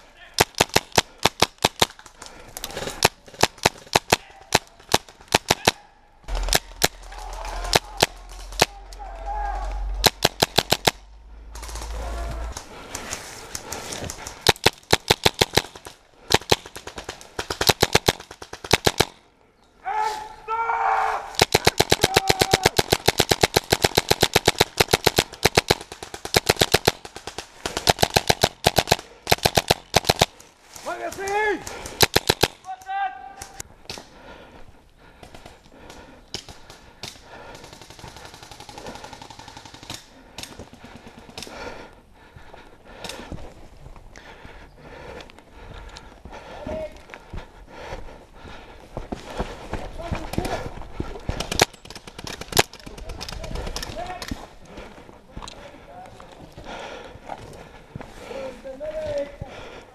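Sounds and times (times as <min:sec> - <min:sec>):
airsoft rifles firing bursts: 0:00.4 - 0:02.0, 0:10.0 - 0:11.0, 0:13.0 - 0:19.2, 0:21.4 - 0:30.4, 0:31.0 - 0:32.6, 0:37.4 - 0:41.5, 0:51.3 - 0:54.4
airsoft gun full-auto burst: 0:21.4 - 0:30.3.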